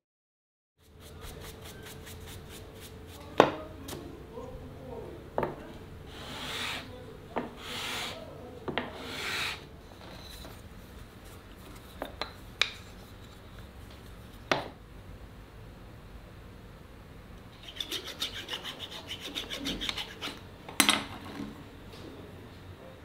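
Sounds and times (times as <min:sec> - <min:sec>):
hand tool scraping: 0:07.6 - 0:08.2, 0:08.9 - 0:09.6, 0:17.6 - 0:20.4.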